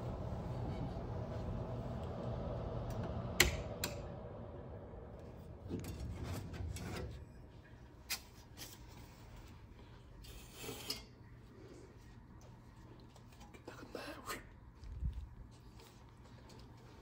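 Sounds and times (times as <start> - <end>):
heater fan humming: 0.0 - 17.0
metal grille rattling and scraping: 5.6 - 7.3.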